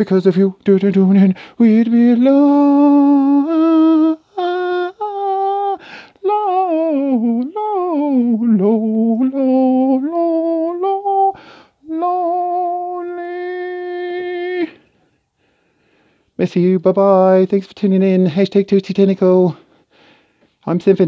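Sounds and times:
person singing wordless tune: 0.0 - 15.0
quick breath: 1.4 - 1.6, 5.8 - 6.2, 11.4 - 11.8, 14.8 - 16.4, 19.6 - 20.6.

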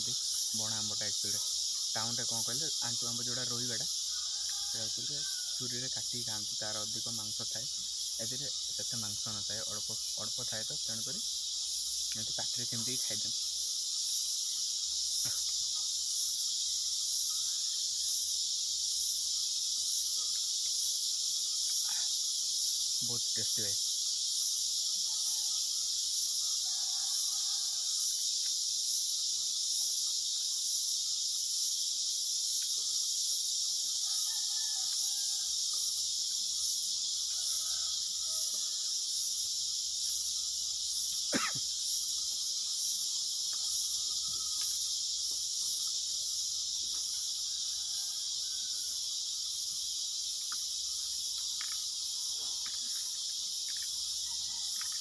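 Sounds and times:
high-pitched insect chorus: 0.0 - 55.0.

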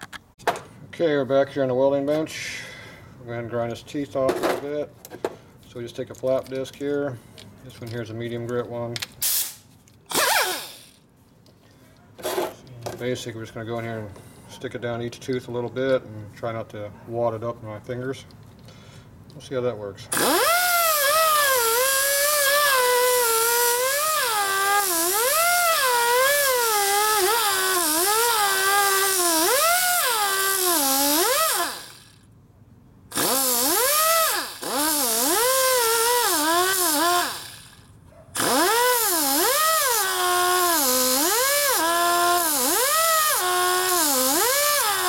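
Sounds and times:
die grinder whining on steel: 10.1 - 11.0, 20.1 - 32.2, 33.1 - 45.0.

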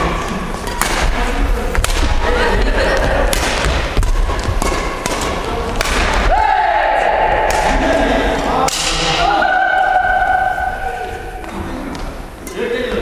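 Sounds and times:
rackets striking shuttlecock: 0.6 - 2.3, 3.0 - 6.4, 7.4 - 9.2.

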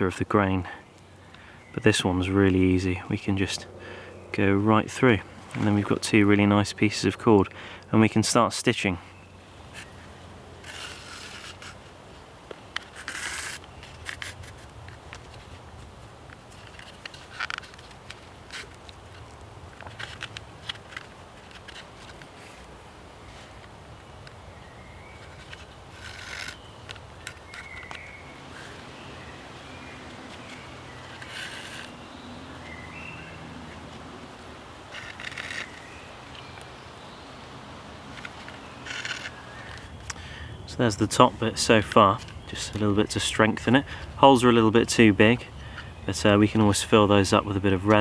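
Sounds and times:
root cord scraping and rubbing: 4.4 - 7.5, 9.7 - 22.7, 25.1 - 32.9, 34.8 - 36.6, 38.0 - 47.0
faint bird chirps: 26.2 - 33.8.

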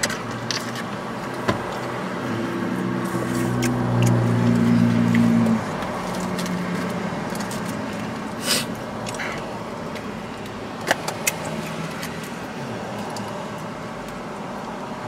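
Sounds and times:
sniff-like sound: 8.4 - 9.4.

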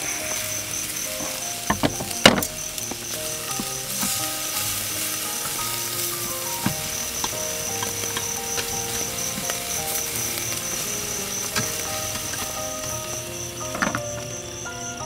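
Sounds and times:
background music: 0.0 - 15.0
meat sizzling on grill: 0.0 - 15.0.

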